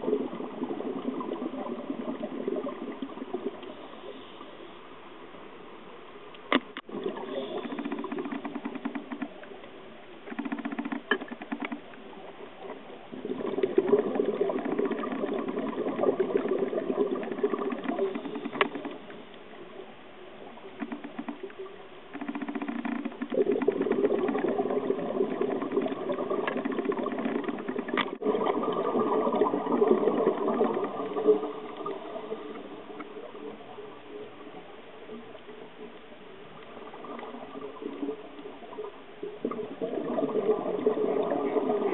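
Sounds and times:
underwater bubbles gurgling: 0.0s - 4.7s, 6.7s - 10.3s, 10.9s - 41.9s
steady hiss: 3.0s - 8.1s
sharp clicks: 7.6s - 9.5s, 10.3s - 12.0s, 20.8s - 24.6s.

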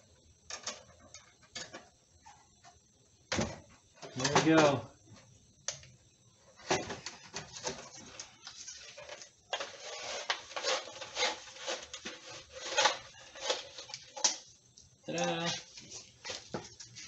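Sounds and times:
fish tape scraping and rattling: 7.6s - 14.3s.

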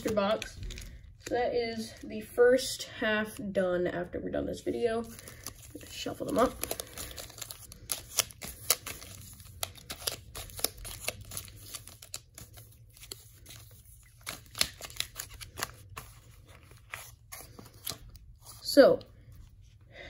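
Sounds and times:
foil packs crinkling: 0.0s - 1.3s, 5.0s - 18.7s.

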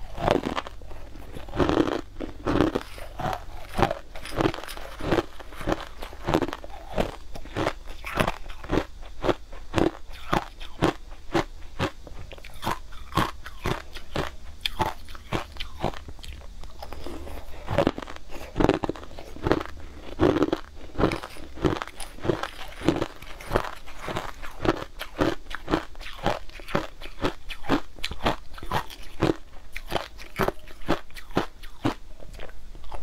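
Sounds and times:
crushed ice crunching in mouth: 0.1s - 33.0s.

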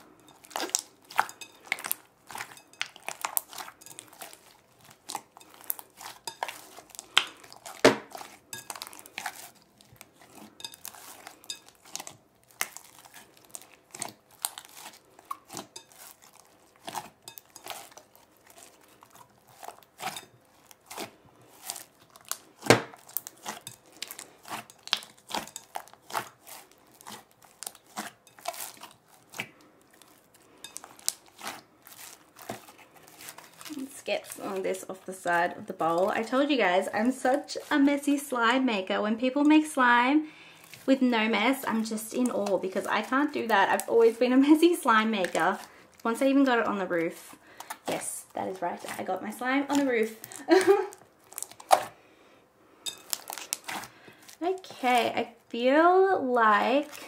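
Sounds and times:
slime squelching and clicking: 0.3s - 33.9s, 47.1s - 52.0s, 52.9s - 55.4s
slime popping: 49.7s - 51.9s, 52.9s - 53.9s.

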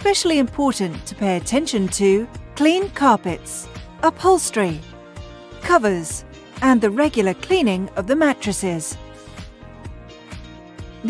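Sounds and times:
quiet background music: 0.0s - 11.0s.

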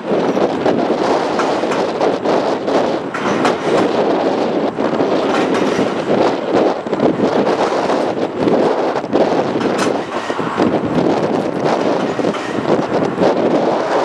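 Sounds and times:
streetcar wheels rumbling on rails: 0.0s - 14.0s
clicks and clatters: 3.1s - 4.0s, 5.1s - 6.4s, 9.5s - 10.4s.

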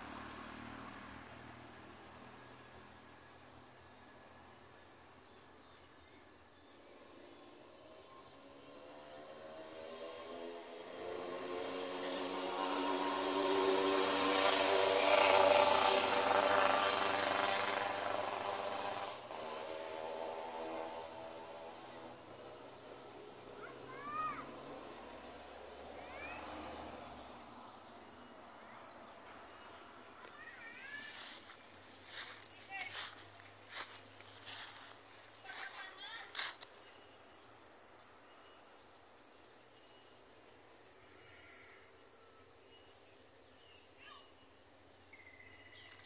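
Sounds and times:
high insect hiss: 0.0s - 46.0s
insects buzzing drone: 0.0s - 46.0s
bird chirping: 1.9s - 10.0s, 26.1s - 46.0s.

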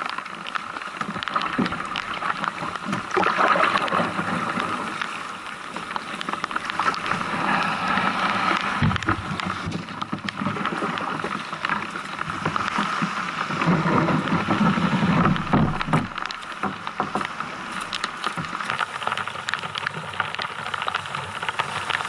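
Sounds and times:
kayak hull scraping over gravel: 0.0s - 22.0s
small waves washing over shingle: 0.0s - 22.0s
rattle of stones: 12.4s - 22.0s.

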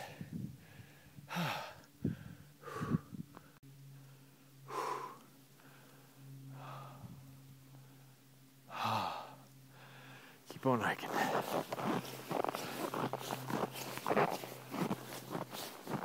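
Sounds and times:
person breathing hard: 0.0s - 10.4s
faint low hum: 0.0s - 16.0s.

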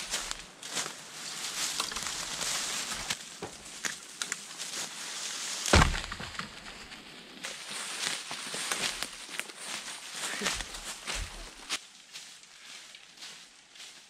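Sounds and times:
tree trunk dragged through leaves: 0.0s - 13.9s
footsteps crunching: 0.0s - 14.0s
twigs snapping: 0.1s - 4.8s, 7.4s - 9.6s.

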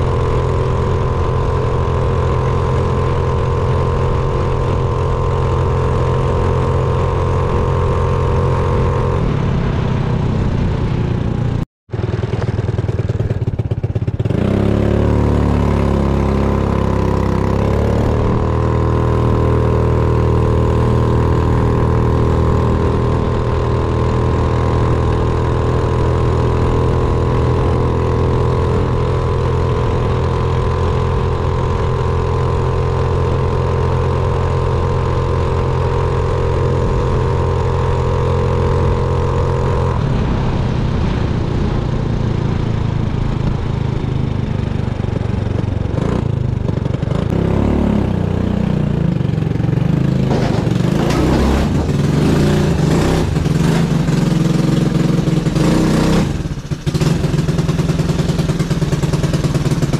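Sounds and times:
wind noise: 0.0s - 11.6s, 16.2s - 48.1s
scooter engine accelerating: 0.0s - 59.9s.

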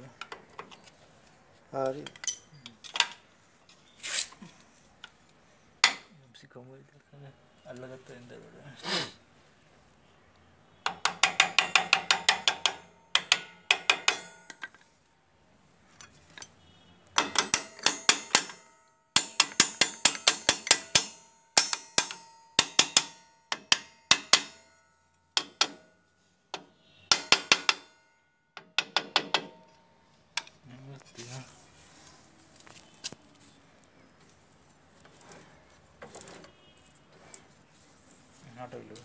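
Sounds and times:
hammer striking metal: 10.9s - 14.6s, 17.2s - 26.0s, 26.6s - 29.9s.

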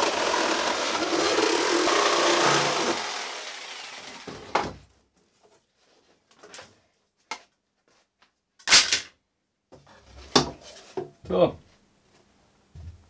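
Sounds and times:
jigsaw cutting plastic: 0.0s - 4.8s.

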